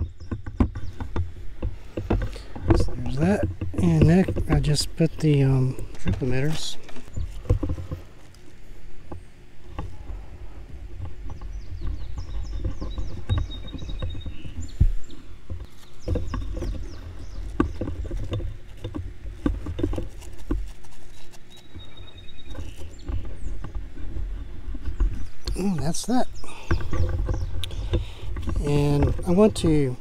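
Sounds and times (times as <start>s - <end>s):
tubing clicks knocks and rustles: 0.0s - 30.0s
faint bird chirps: 21.1s - 23.7s.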